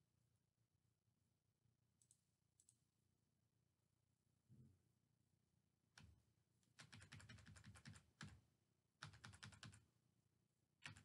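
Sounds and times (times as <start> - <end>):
typing on computer keyboard: 6.8 - 8.4, 9.0 - 9.8.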